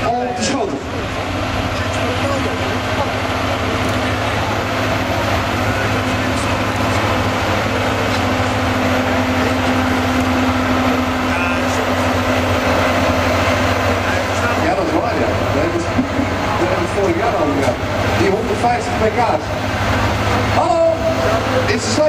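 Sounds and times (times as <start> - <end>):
diesel truck engine under load: 0.0 - 22.0.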